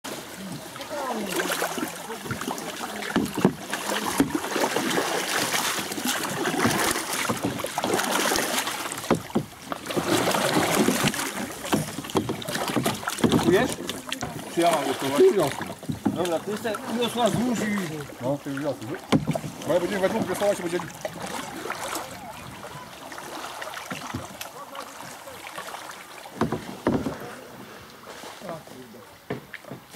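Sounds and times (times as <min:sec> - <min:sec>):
paddles dipping and splashing: 0:00.0 - 0:29.9
water washing along hull: 0:00.0 - 0:29.9
small knocks: 0:09.0 - 0:09.5, 0:10.7 - 0:14.4, 0:19.1 - 0:19.6.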